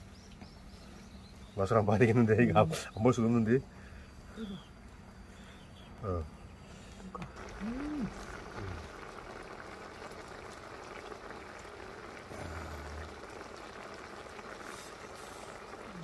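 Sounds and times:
sauce bubbling at a simmer: 7.2s - 16.0s.

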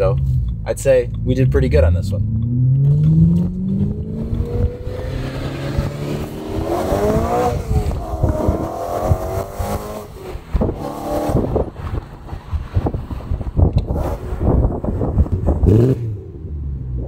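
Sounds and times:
car engine accelerating: 0.1s - 12.0s.

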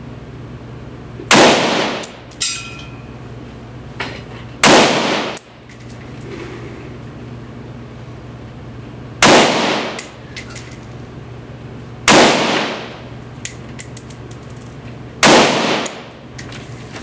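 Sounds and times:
rifle shots echoing indoors: 1.3s - 2.1s, 4.6s - 5.4s, 9.2s - 10.1s, 12.1s - 12.9s, 15.2s - 16.1s
light clinks: 2.1s - 3.1s, 13.4s - 14.9s.

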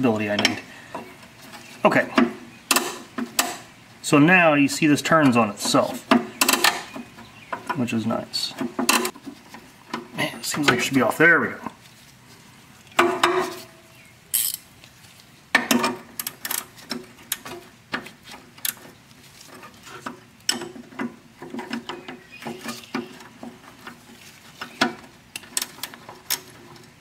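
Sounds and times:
spanners clinking on metal: 14.3s - 14.7s.

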